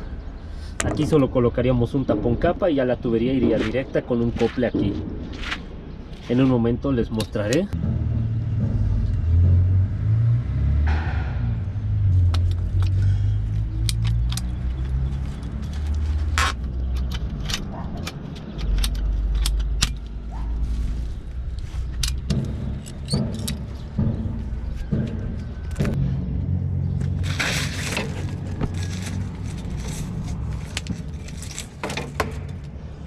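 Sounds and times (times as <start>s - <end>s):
low rumble: 7.7s - 15.4s.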